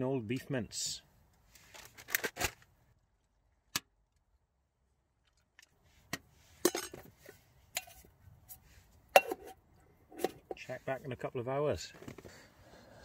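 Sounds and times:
metal pot and lid clinking: 6.6s - 7.1s, 7.7s - 8.1s, 9.2s - 10.6s.

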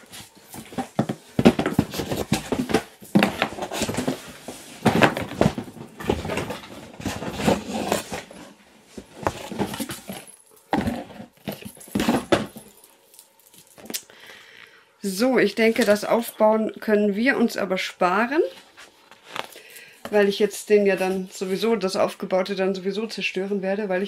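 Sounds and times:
cardboard and paper rustling: 0.0s - 13.9s, 18.4s - 20.4s.

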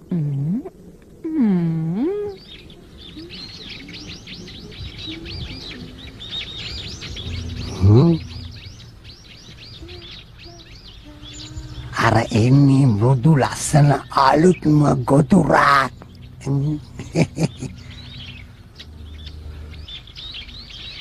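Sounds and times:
small birds chirping: 0.0s - 21.0s
swooping voice sound: 7.7s - 8.4s.

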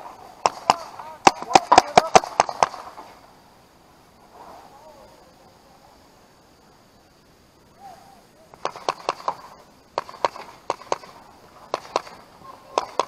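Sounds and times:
paintball markers firing: 0.4s - 3.1s, 8.6s - 13.0s.

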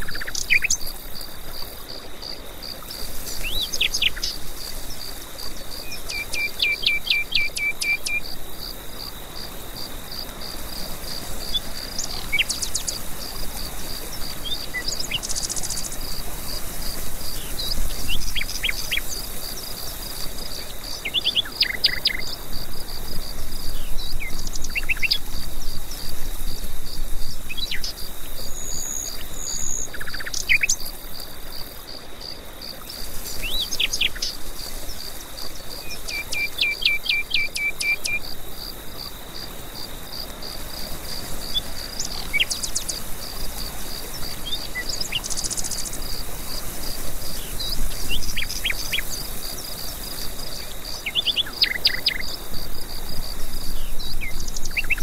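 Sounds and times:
insect chirping: 0.0s - 55.0s.

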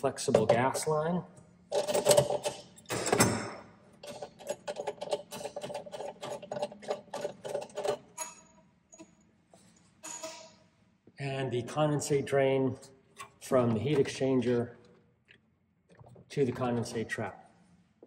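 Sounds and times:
metal nut clicking and rattling: 4.0s - 9.2s.

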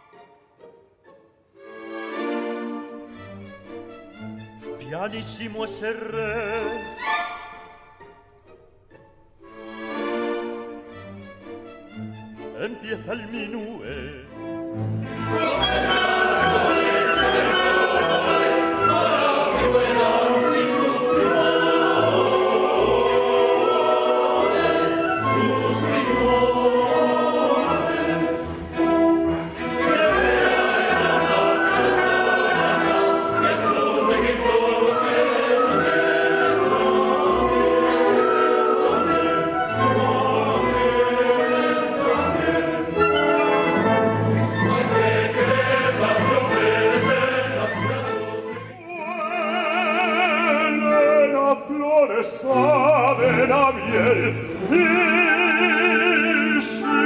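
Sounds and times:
orchestra playing: 0.0s - 51.4s
chorus singing: 12.6s - 57.0s.

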